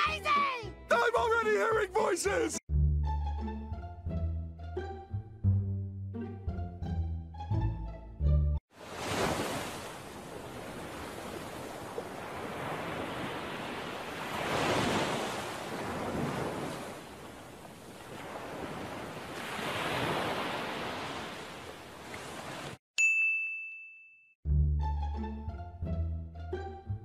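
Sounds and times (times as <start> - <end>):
ocean waves washing in: 8.7 - 22.8.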